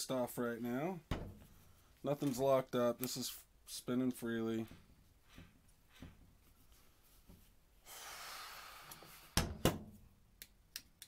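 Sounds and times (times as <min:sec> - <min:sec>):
breathy exhale: 0:07.8 - 0:09.4.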